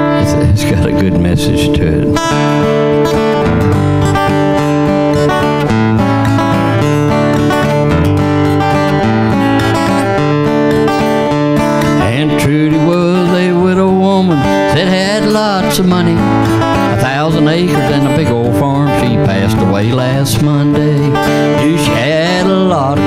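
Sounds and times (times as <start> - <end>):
man singing: 0.0 - 2.2, 11.9 - 23.0
acoustic guitar strumming chords: 0.0 - 23.0.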